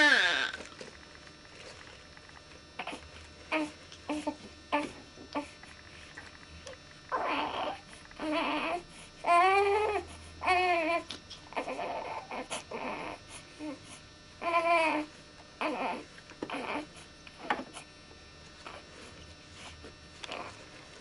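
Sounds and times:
baby crying: 0.0 - 0.6, 7.1 - 13.2
baby whimpering: 0.0 - 0.7, 2.8 - 5.6, 7.1 - 13.8, 14.4 - 17.9.

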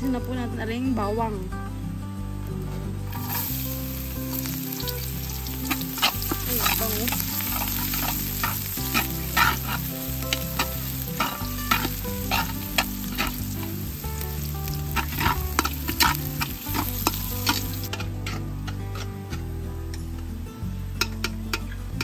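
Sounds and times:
garlic sizzling in oil: 3.1 - 19.1
metal utensil scraping a pot: 3.1 - 19.2.

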